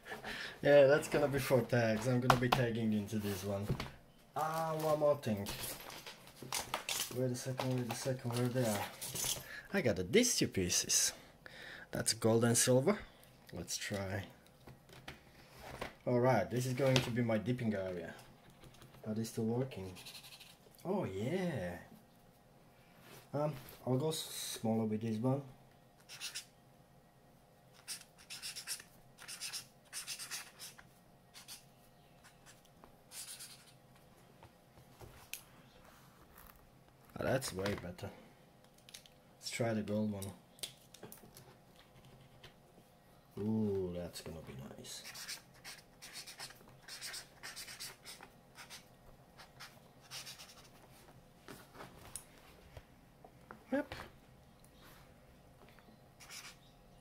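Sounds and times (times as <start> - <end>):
marker scratching on paper: 19.9 - 20.6, 26.1 - 26.5, 27.8 - 31.6, 32.2 - 33.8, 45.0 - 50.8, 56.2 - 56.6.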